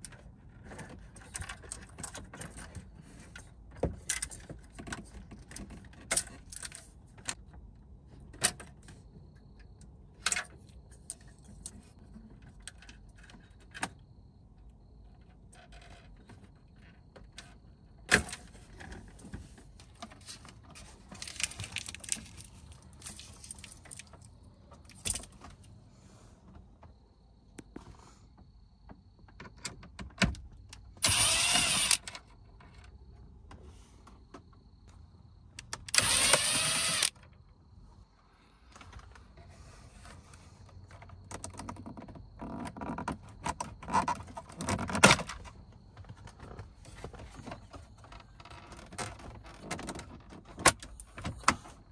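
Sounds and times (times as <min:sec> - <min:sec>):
plastic connectors clicking and rattling: 0:21.1 - 0:24.3
cordless driver running: 0:31.0 - 0:32.0, 0:35.9 - 0:37.1.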